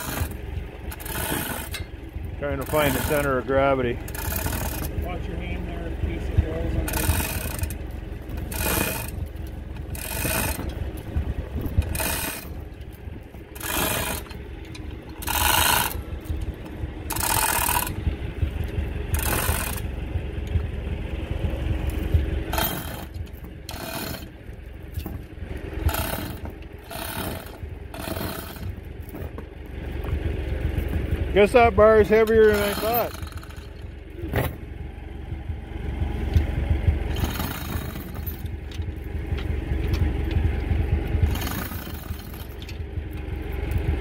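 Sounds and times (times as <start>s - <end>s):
hoist chain rattling and ratcheting: 0.0s - 20.7s, 21.8s - 34.7s, 36.3s - 44.0s
low rumble: 0.0s - 44.0s.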